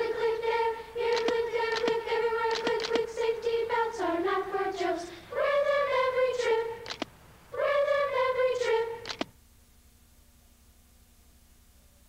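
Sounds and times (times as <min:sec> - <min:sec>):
children's chorus singing: 0:00.0 - 0:09.3
sharp clicks: 0:01.0 - 0:03.2, 0:06.8 - 0:07.2, 0:09.0 - 0:09.4.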